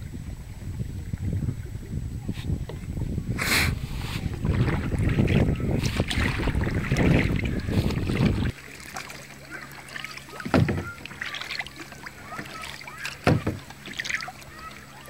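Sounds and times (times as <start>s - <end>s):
wind buffeting microphone: 0.0s - 8.6s
paddle splashes in water: 0.0s - 15.0s
water dripping off paddle: 4.4s - 15.0s.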